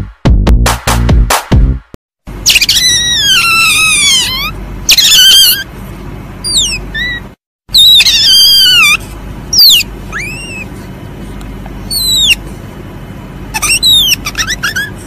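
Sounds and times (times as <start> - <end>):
civet squealing calls: 2.4 - 5.7, 6.4 - 11.0, 11.8 - 12.5, 13.5 - 15.0.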